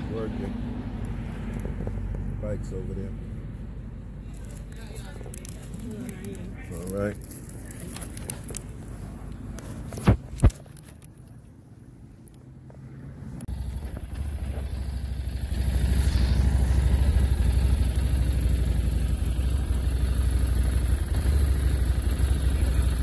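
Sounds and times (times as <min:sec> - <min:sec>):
motorcycle engine idling: 0:13.5 - 0:23.0.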